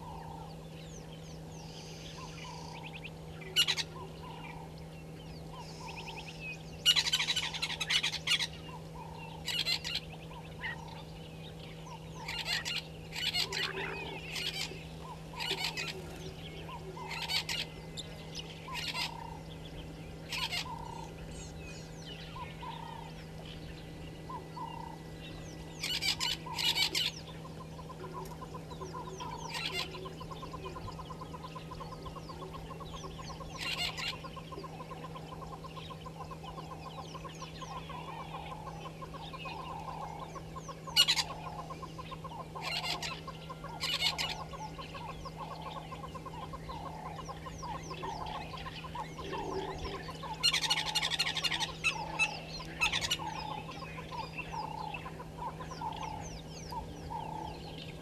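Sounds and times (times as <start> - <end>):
low hum: 0.0 - 58.0
small birds chirping: 0.0 - 58.0
harsh bird calling bursts: 5.5 - 11.0, 11.9 - 19.5, 20.2 - 21.2, 25.7 - 57.6
gamebirds clucking: 25.8 - 58.0.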